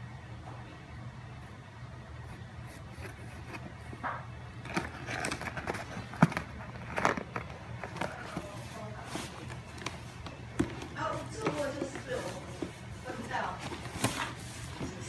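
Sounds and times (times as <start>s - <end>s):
cardboard box scraping and rustling: 4.6s - 15.0s.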